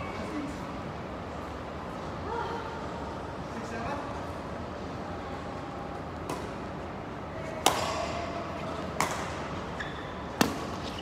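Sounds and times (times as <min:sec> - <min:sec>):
rackets striking shuttlecock: 0:06.2 - 0:06.6, 0:07.6 - 0:08.2, 0:08.9 - 0:09.5, 0:10.3 - 0:11.0.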